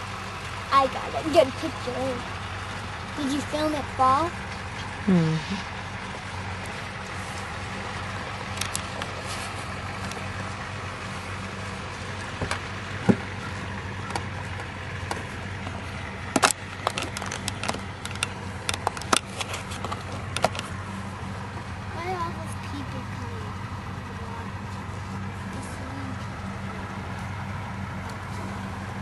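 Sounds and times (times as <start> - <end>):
vehicle engine idling: 0.0 - 29.0
sharp clicks and knocks: 14.0 - 20.8.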